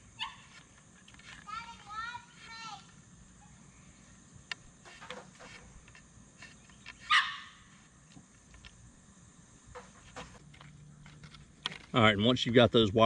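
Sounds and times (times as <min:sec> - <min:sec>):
clicks and rustles of handling: 0:00.5 - 0:02.5, 0:09.7 - 0:12.0
dog barking: 0:07.1 - 0:07.6.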